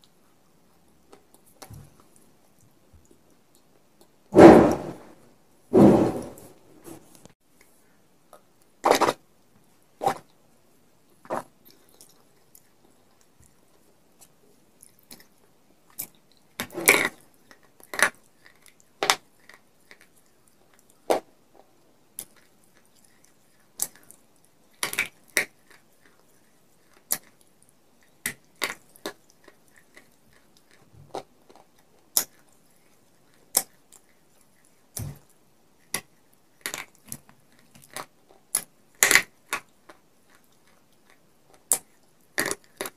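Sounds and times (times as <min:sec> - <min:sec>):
clay pieces crunching when chewed: 0:11.1 - 0:42.9.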